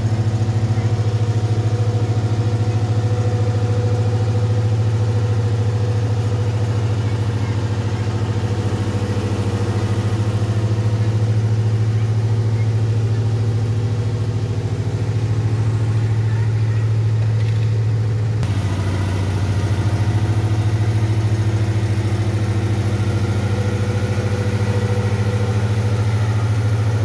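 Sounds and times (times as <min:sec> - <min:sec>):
road roller engine droning: 0:00.0 - 0:27.0.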